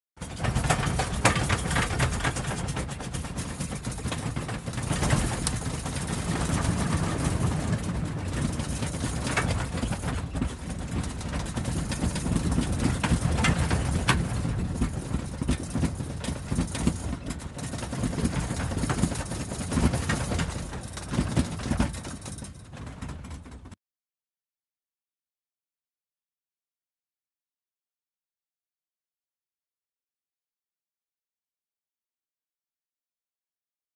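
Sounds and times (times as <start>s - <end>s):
clicks and rattles: 0.2s - 23.8s
low rumble of engines and airflow: 0.2s - 23.8s.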